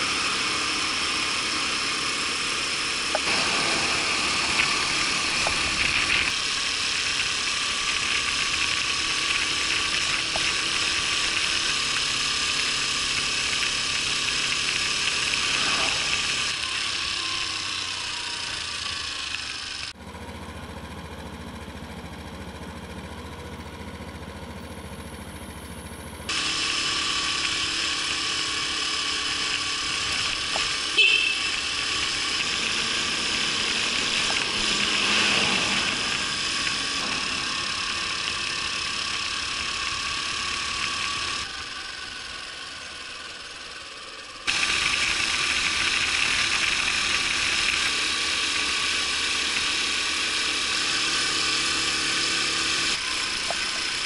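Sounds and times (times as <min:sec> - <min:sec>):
small scooter engine running: 0:00.0 - 0:54.0
steady rushing noise: 0:03.2 - 0:07.8.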